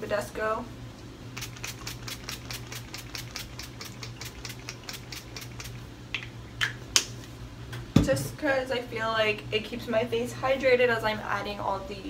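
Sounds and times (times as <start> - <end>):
spray bottle hissing squirts: 1.4 - 5.8.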